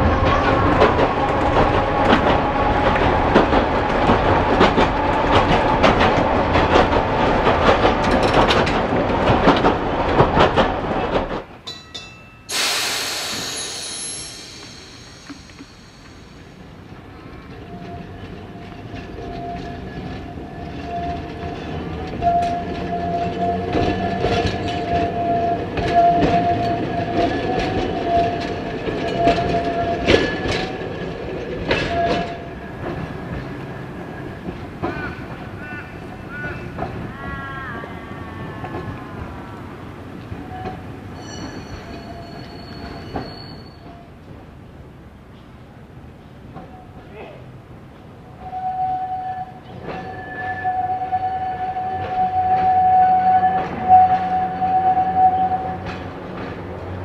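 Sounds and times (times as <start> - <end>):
wheels clacking over rail: 0.0 - 11.8, 19.9 - 37.4
tram passing with high whine: 0.0 - 57.0
tram wheels rumbling on rail: 0.0 - 57.0
sudden high sound: 12.5 - 16.6
tram motor whine: 12.5 - 44.2.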